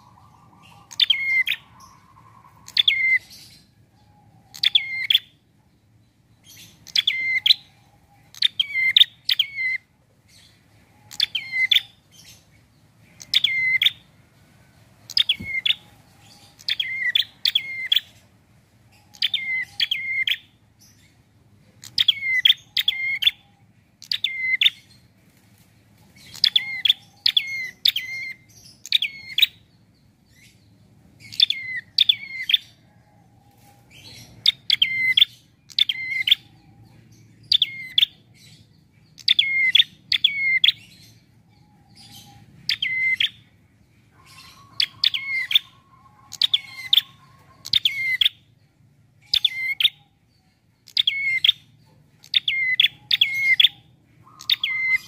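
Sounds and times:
bird chirping sharply: 0:50.8 - 0:55.0.

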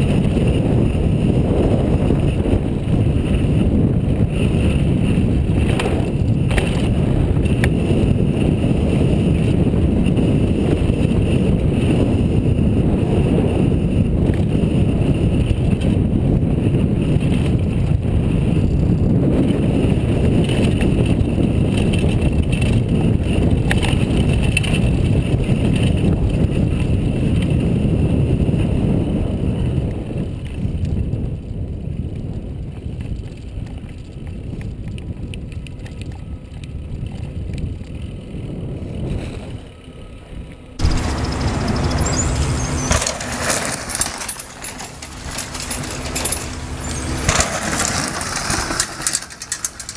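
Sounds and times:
bike tyres rumbling on dirt trail: 0:00.0 - 0:49.9
rushing wind: 0:00.0 - 0:49.9
bike knocking over bumps: 0:40.8 - 0:49.9.

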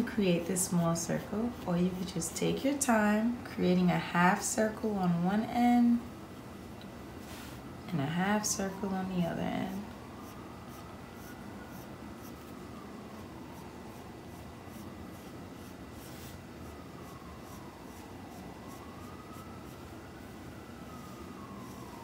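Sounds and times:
siren wailing: 0:07.8 - 0:22.0
pencil scratching on paper: 0:14.3 - 0:16.4.

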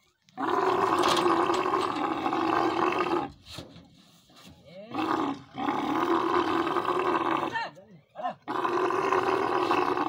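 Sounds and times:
camel roaring: 0:00.4 - 0:03.4, 0:04.9 - 0:07.6, 0:08.4 - 0:10.0.

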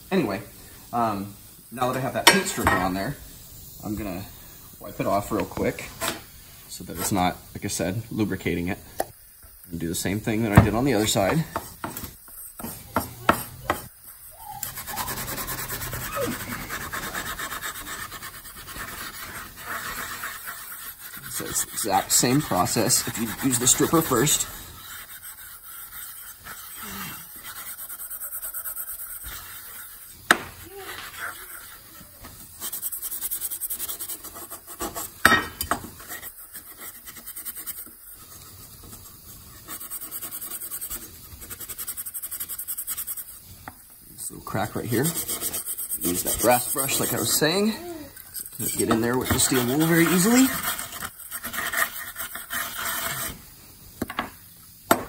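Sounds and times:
pad scrubbing metal: 0:14.5 - 0:35.3, 0:44.8 - 0:47.6, 0:48.6 - 0:53.4.

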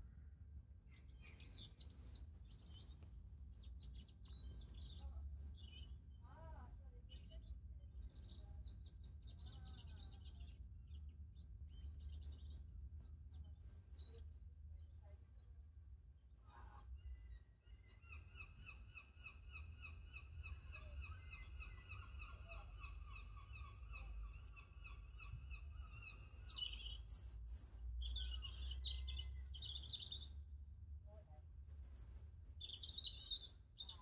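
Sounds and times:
small birds chirping: 0:00.8 - 0:34.0.

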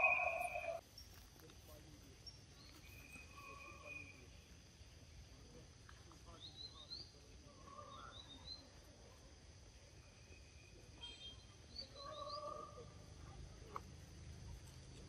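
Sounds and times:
low held bird call: 0:00.0 - 0:00.8
twittering bird chirps: 0:00.0 - 0:01.2, 0:02.2 - 0:04.4, 0:06.3 - 0:08.8, 0:10.1 - 0:13.0
faint forest ambience: 0:00.0 - 0:15.0.

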